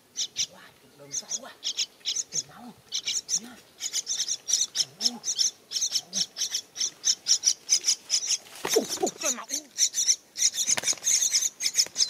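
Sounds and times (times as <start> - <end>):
parrot chicks chirping: 0.0 - 12.0.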